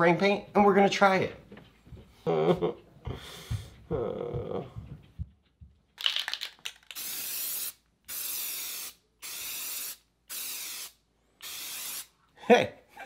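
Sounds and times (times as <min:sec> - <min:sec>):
spray paint hissing: 0:06.2 - 0:12.2.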